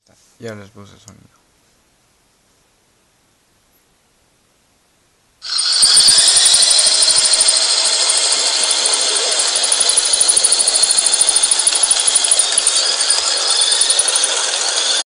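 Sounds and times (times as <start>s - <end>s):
thin remote-control car motor: 5.4s - 15.0s.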